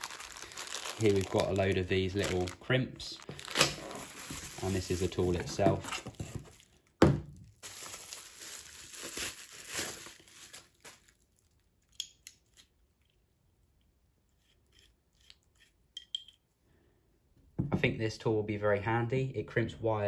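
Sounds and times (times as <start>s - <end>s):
bubble wrap crinkling: 0.0s - 13.1s.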